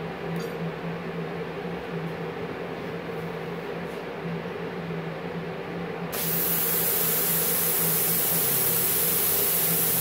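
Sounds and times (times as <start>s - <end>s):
loud hiss of flowing air: 6.1s - 10.0s
machine humming: 6.1s - 10.0s.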